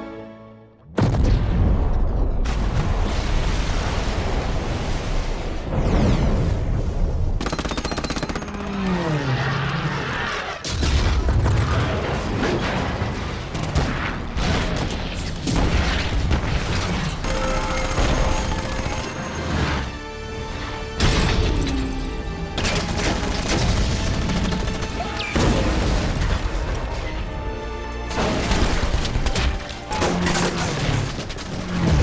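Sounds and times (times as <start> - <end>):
film score music: 0.0 - 2.6, 8.4 - 32.0
explosions: 0.9 - 7.4, 10.6 - 17.2
rapid machine-gun fire: 7.4 - 9.0, 17.2 - 19.3, 22.6 - 25.2.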